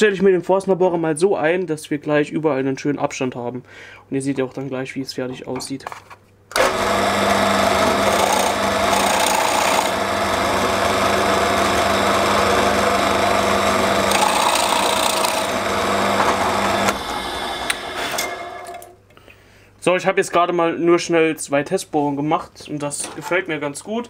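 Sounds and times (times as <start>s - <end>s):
drill bit boring into wood: 6.6s - 18.8s
drill press motor hum: 6.6s - 19.0s.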